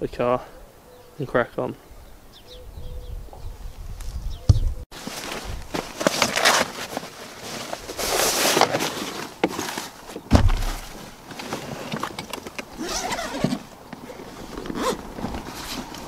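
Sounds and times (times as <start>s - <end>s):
padded fabric bags rustling: 4.9s - 16.0s
heavy bag thudding down: 10.3s - 11.1s.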